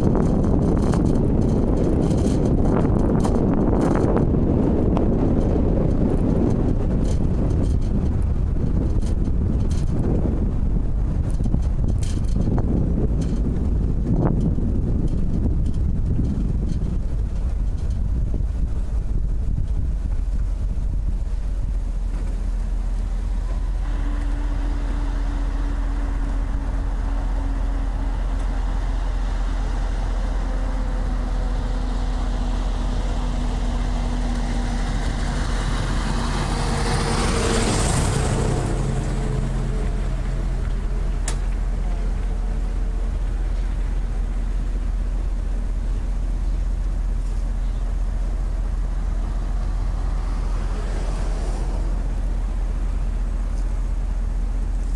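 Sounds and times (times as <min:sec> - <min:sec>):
low rumble of road and wind: 0:00.0 - 0:54.9
vehicle passing by: 0:22.5 - 0:54.9.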